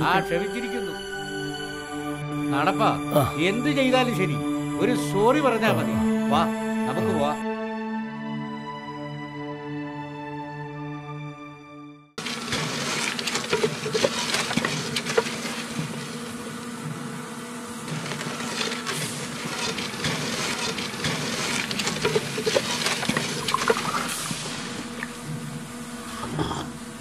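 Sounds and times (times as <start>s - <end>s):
low machine hum: 12.4s - 27.0s.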